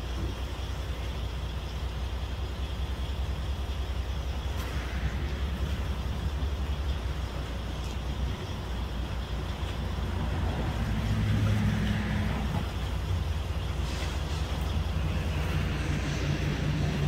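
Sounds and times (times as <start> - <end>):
truck engine idling: 0.0 - 17.0.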